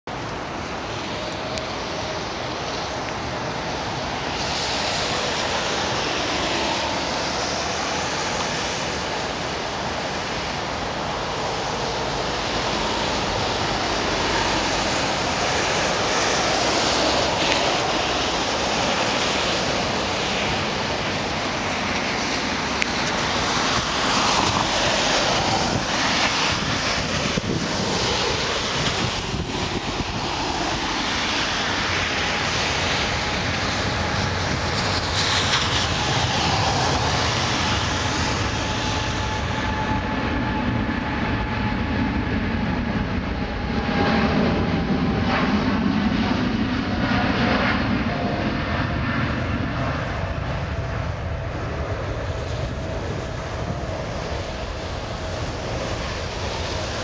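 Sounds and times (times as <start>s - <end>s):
heavy rain: 0.1s - 40.6s
jet engines roaring: 0.1s - 57.0s
wind on microphone: 0.1s - 57.0s.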